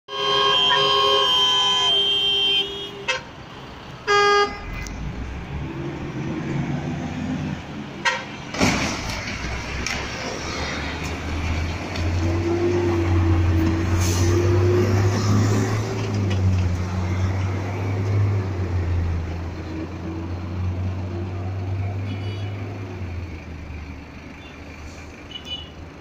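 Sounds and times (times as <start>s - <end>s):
vehicle horn blasts: 0.1s - 3.3s, 4.1s - 4.7s, 22.1s - 22.6s
passing highway traffic: 0.1s - 26.0s.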